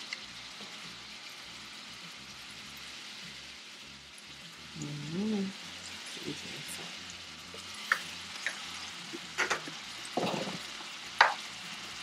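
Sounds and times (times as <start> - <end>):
meat sizzling in a frying pan: 0.0 - 12.0
utensils knocking on a pan: 9.2 - 10.6, 11.2 - 11.4.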